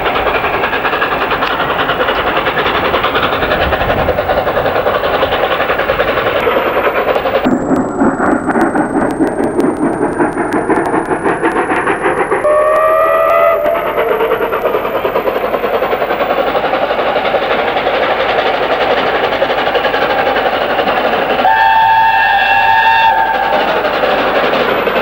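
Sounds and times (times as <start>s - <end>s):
steam locomotive exhaust beat: 0.0s - 25.0s
train rumble: 0.0s - 25.0s.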